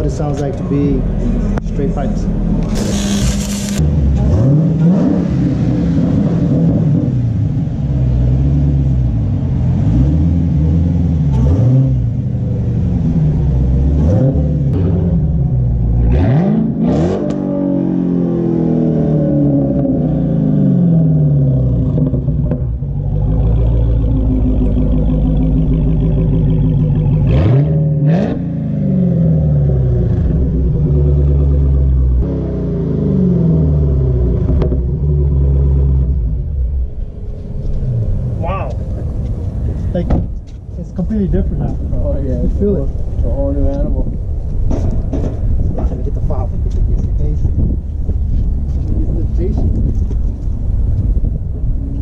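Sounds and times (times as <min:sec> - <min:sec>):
car engine revving: 0:00.0 - 0:52.0.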